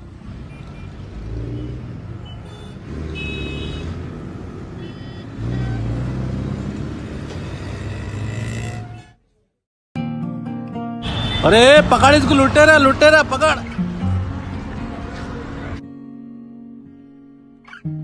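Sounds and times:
motorbike and car engines: 0.0s - 9.3s, 11.0s - 15.8s.

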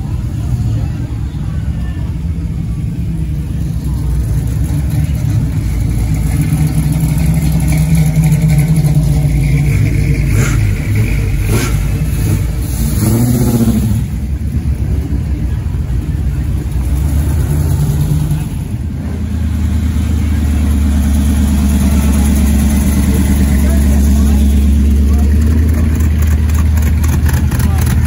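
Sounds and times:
car engines driving past: 0.0s - 28.0s
engine revving: 4.5s - 14.5s, 16.6s - 28.0s.

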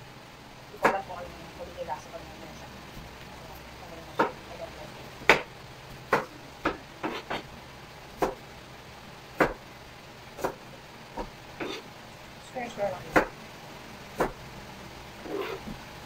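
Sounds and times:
knife chopping on plastic board: 4.2s - 4.4s, 5.2s - 7.5s, 8.2s - 8.4s, 9.4s - 9.6s, 10.4s - 10.6s, 13.1s - 13.4s, 14.2s - 14.4s.

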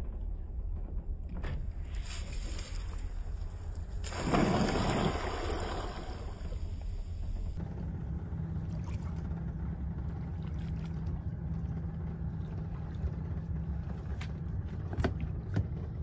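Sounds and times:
boat engine idling: 6.2s - 16.0s.

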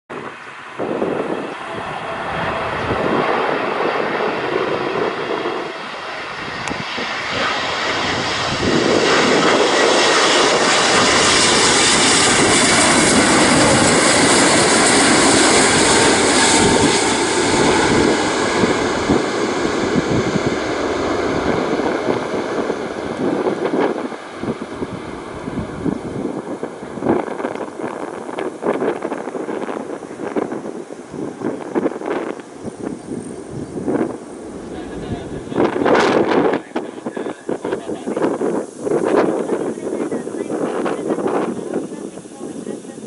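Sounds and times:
jet engines passing overhead: 0.1s - 43.0s.

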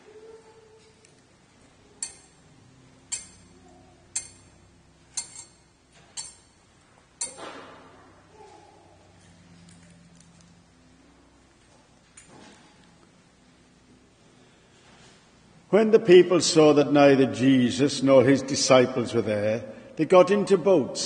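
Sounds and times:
censer chains clinking: 2.0s - 7.5s.

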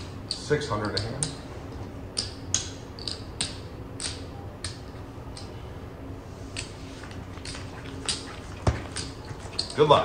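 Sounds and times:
casino chips clicking: 7.4s - 9.8s.

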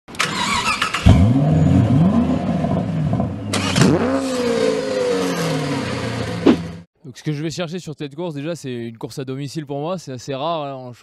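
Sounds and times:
racing car engine revving: 1.0s - 6.8s.

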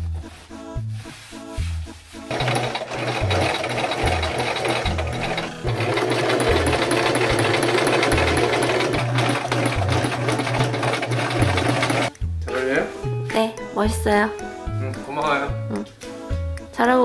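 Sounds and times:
sewing machine stitching: 2.3s - 12.1s.

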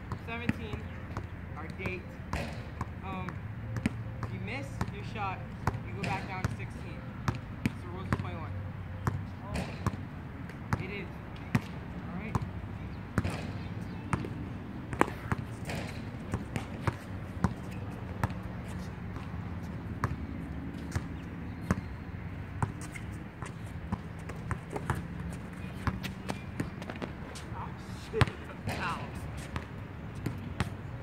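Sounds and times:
basketball bouncing on hard court: 0.1s - 6.6s, 9.0s - 10.0s, 11.5s - 12.6s, 13.2s - 21.9s, 22.6s - 27.4s, 28.2s - 30.8s.

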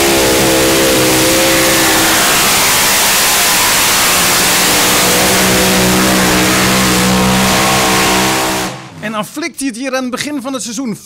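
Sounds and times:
pulling tractor engines roaring: 0.0s - 9.0s.

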